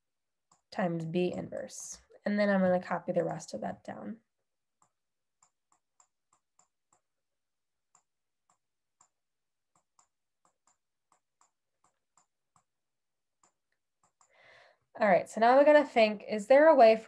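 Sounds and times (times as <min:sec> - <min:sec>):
stylus tapping on tablet screen: 0:00.4 - 0:02.1, 0:04.5 - 0:14.4.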